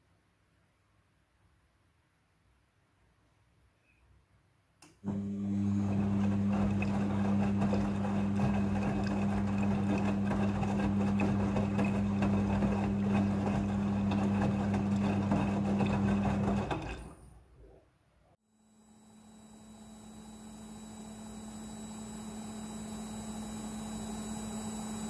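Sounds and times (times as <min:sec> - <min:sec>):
washing machine drum spinning: 0:05.1 - 0:17.2.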